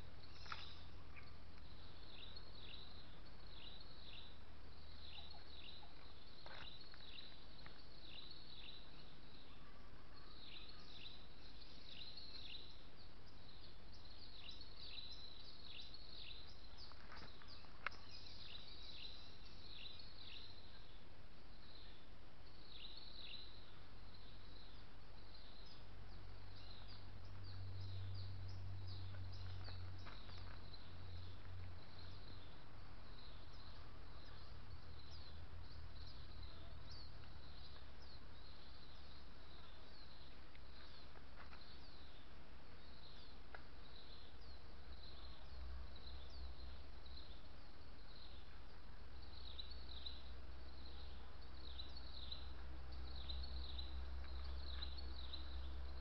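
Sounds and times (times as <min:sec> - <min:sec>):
low steady rumble: 0:23.2 - 0:42.8.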